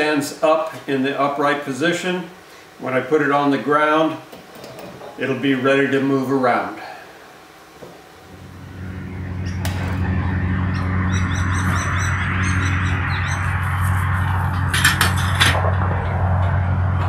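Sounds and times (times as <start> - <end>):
steady low hum: 0.0 - 17.0
birds chirping: 8.5 - 14.6.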